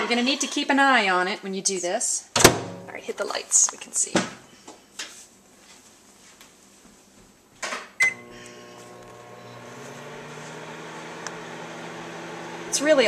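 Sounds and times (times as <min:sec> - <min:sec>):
microwave beep: 0:08.0 - 0:12.2
microwave oven humming: 0:08.0 - 0:13.0.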